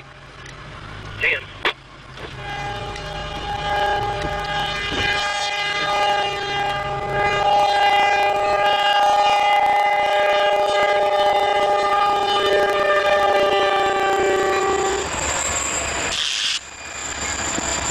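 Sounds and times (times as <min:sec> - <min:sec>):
locomotive air horn blast: 0:02.3 - 0:15.1.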